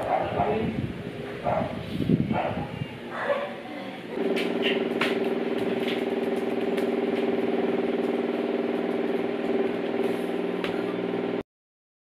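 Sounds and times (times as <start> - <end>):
electric motor humming: 4.0 - 11.4.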